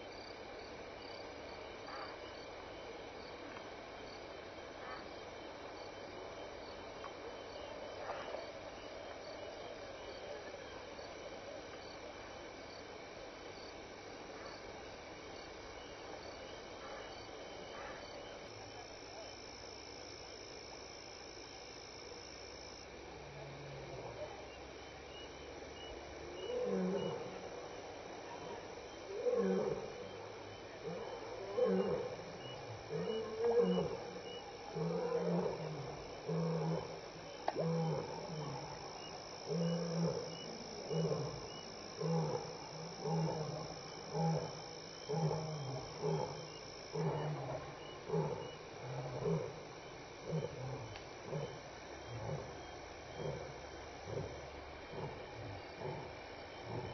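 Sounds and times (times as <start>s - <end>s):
lion grunting roar: 50.2s - 56.9s.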